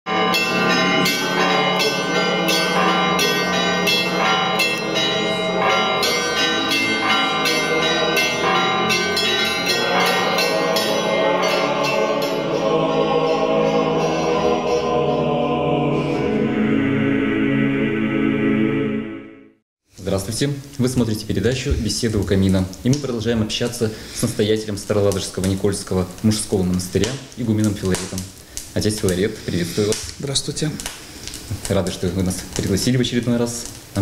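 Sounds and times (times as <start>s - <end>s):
bells ringing: 0.1s - 15.2s
sustained musical chord: 0.1s - 19.2s.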